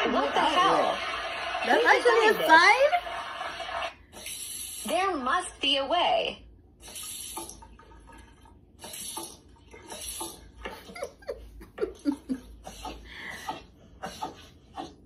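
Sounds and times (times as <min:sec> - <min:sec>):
breathy laughter: 0:10.6 - 0:13.6.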